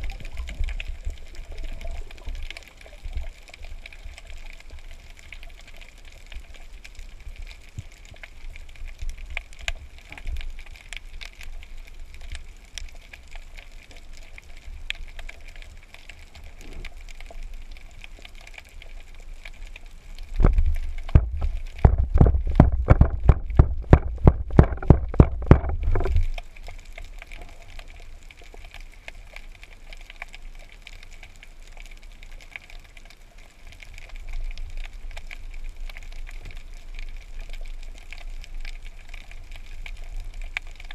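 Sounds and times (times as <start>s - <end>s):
low underwater rumble: 0.0s - 40.9s
underwater hiss and crackling: 0.0s - 40.9s
rapid loud knocks: 20.5s - 26.2s.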